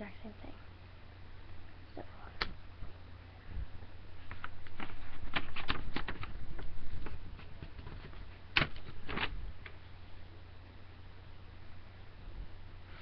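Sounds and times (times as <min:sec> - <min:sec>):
rustling: 0:03.5 - 0:09.8.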